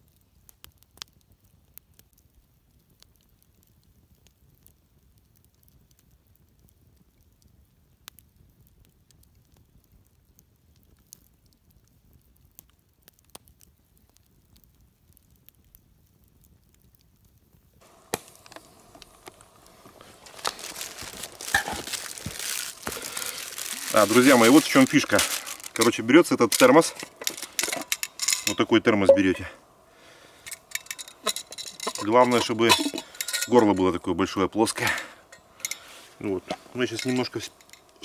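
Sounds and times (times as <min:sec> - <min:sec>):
campfire crackling: 0:00.0 - 0:38.0
fire pops: 0:00.0 - 0:38.0
rustling and crinkling of handling: 0:17.8 - 0:38.0.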